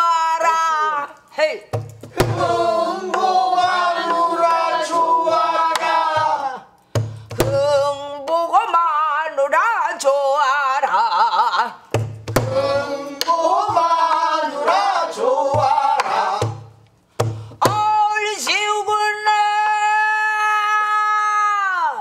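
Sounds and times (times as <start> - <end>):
woman singing with wide vibrato: 7.4 - 11.7, 17.7 - 20.6.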